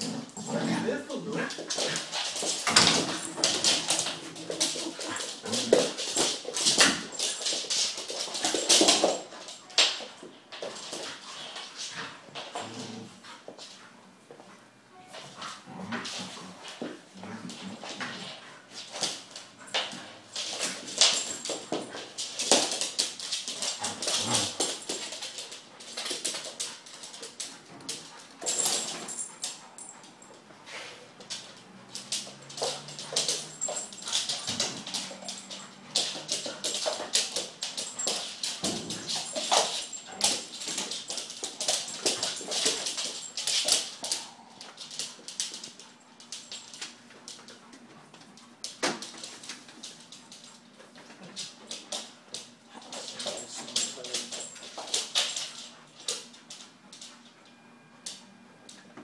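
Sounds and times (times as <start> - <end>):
dogs snarling and yipping: 1.6 - 8.6, 23.1 - 25.3, 26.8 - 46.6
claws scrabbling on hard floor: 16.0 - 29.2.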